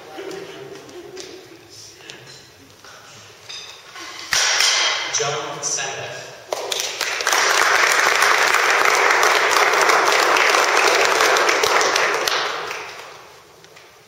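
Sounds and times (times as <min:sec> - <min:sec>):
crowd applauding: 0:06.5 - 0:13.4.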